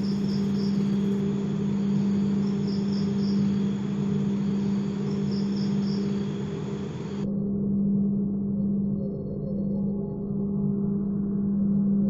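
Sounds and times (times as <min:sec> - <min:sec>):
crickets chirping: 0:00.0 - 0:07.3
steady low hum: 0:00.0 - 0:12.0.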